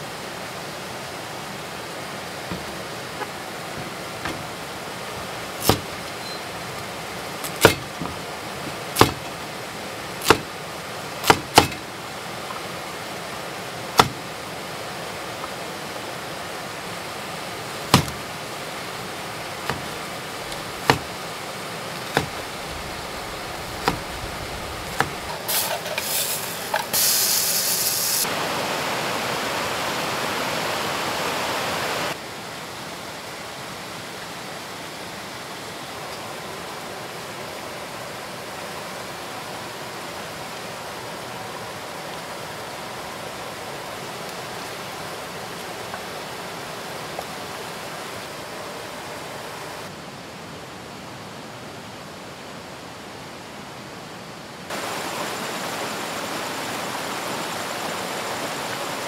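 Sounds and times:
loud steady hiss: 0.0s - 59.0s
river rushing: 0.0s - 59.0s
cleaver chopping on wooden board: 5.6s - 6.0s, 7.4s - 8.2s, 9.0s - 9.3s, 10.2s - 10.5s, 11.2s - 11.8s, 14.0s - 14.2s, 17.9s - 18.2s, 19.7s - 21.2s, 22.0s - 22.5s, 23.8s - 24.1s, 24.9s - 25.3s.

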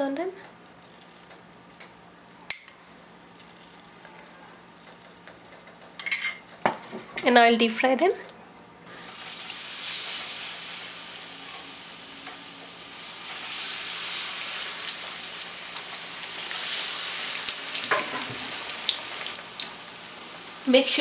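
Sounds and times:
deep frying oil sizzling: 8.9s - 21.0s.

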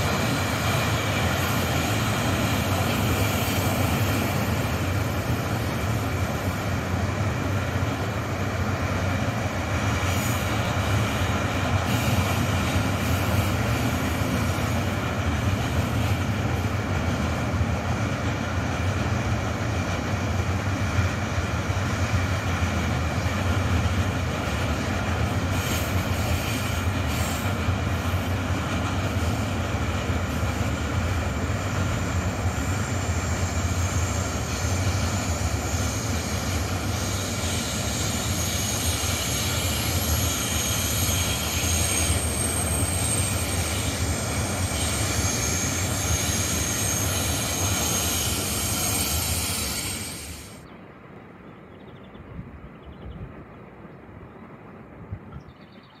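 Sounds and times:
train wheels rumbling on rail: 0.0s - 56.0s
high-pitched wheel squeal: 33.9s - 50.2s.

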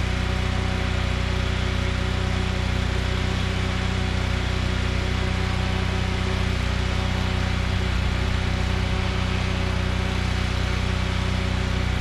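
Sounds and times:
engine humming steadily: 0.0s - 12.0s.

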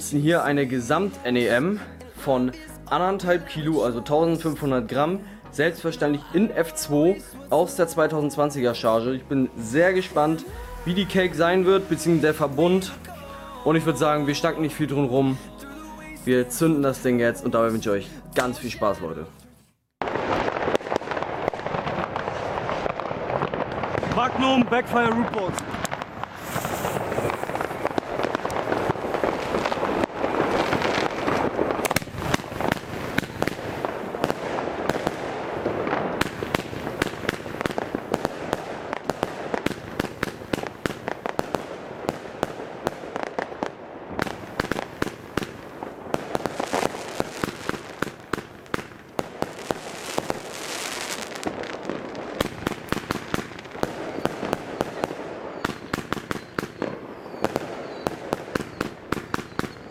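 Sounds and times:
firework crackling: 7.5s - 17.0s, 20.0s - 59.9s
firework launch shots and bursts: 20.0s - 59.9s.

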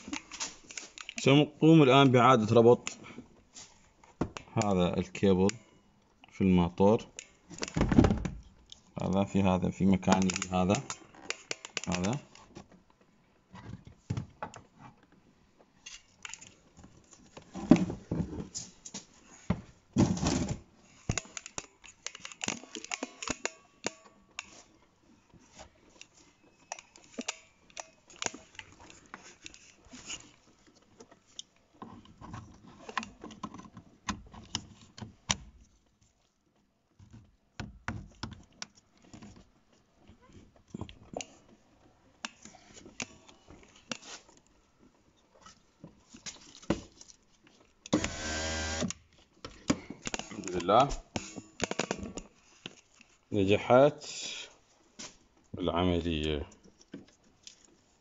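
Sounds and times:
plastic connectors rustling: 0.0s - 1.4s, 7.0s - 12.9s, 15.8s - 35.0s
clicks and knocks of wiring: 7.1s - 13.0s, 20.2s - 24.7s.

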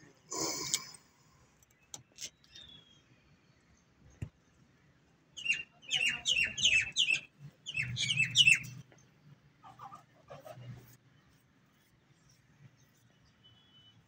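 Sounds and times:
birds chirping: 0.1s - 3.1s, 5.4s - 9.1s.

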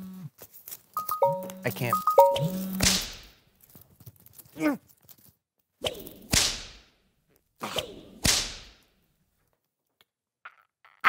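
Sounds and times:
whip-like whooshing swishes: 5.8s - 6.8s, 7.6s - 8.8s.

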